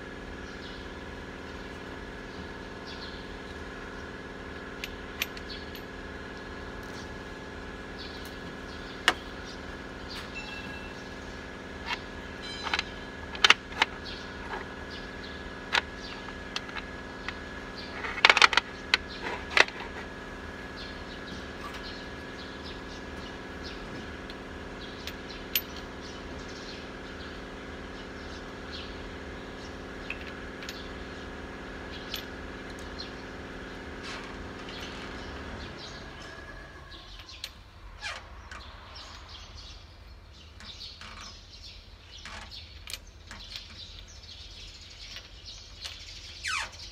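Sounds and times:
steady machine hum: 0:00.0 - 0:37.9.

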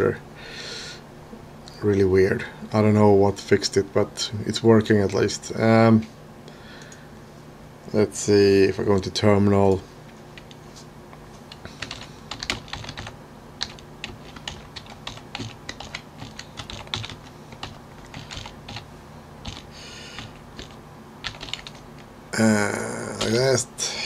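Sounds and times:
computer keyboard typing: 0:11.5 - 0:21.9.

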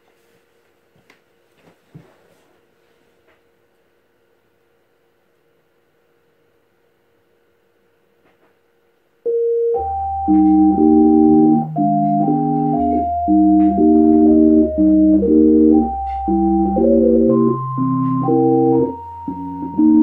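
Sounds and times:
electronic keyboard music: 0:09.3 - 0:20.0.

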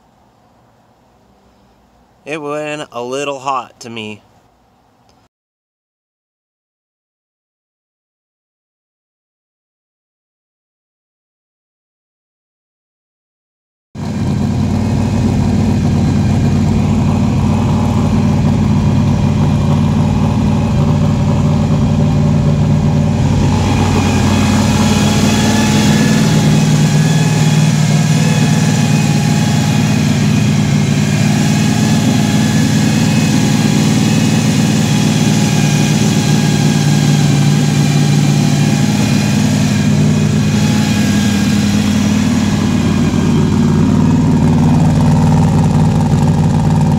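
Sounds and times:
car engine running: 0:14.0 - 0:46.9.

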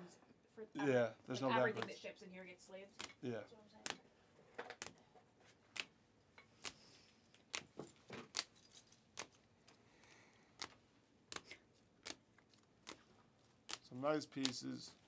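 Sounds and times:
plastic card sleeves clicking: 0:05.7 - 0:09.4, 0:10.6 - 0:14.8.

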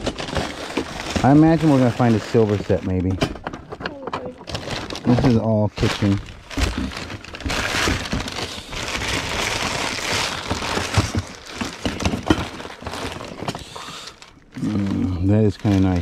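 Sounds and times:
crinkling and rustling: 0:00.0 - 0:16.0
kitchenware clinks and knocks: 0:10.8 - 0:13.6.

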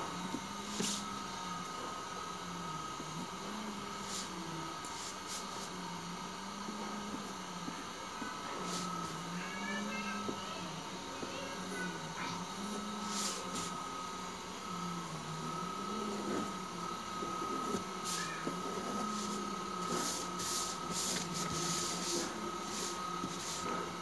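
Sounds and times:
steady high whine: 0:00.0 - 0:24.0
paper sheet smoothed by hand: 0:00.7 - 0:01.1, 0:08.6 - 0:08.9, 0:13.0 - 0:13.8, 0:17.5 - 0:23.8
pencil scratching on paper: 0:17.4 - 0:23.7.

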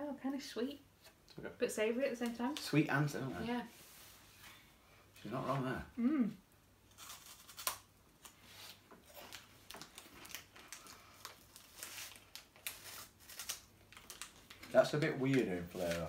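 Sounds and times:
plastic packet crinkling: 0:09.0 - 0:16.0.

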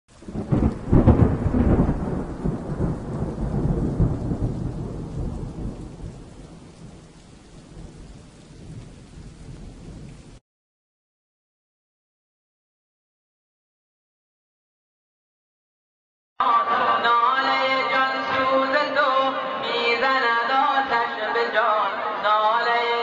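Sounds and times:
rain hissing: 0:00.1 - 0:10.4
thunder rumbling: 0:00.1 - 0:10.4.

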